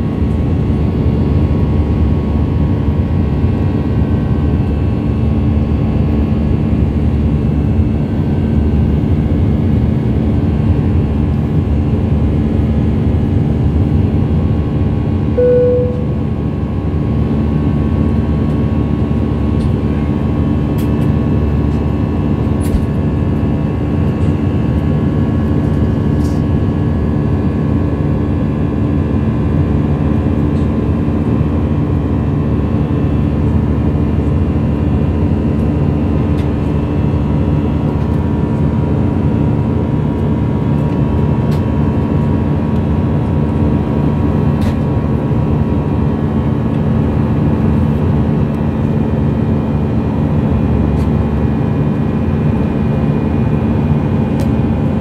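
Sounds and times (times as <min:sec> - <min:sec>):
jet cabin noise: 0:13.0 - 0:27.0, 0:45.8 - 0:55.0
short cabin tone: 0:15.3 - 0:16.7.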